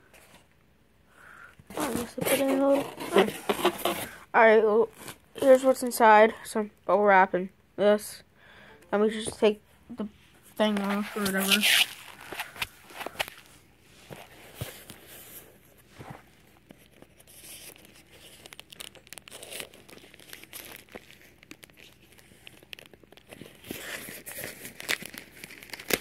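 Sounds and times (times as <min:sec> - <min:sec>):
plastic packaging crinkling: 0:10.6 - 0:15.6, 0:16.3 - 0:26.0.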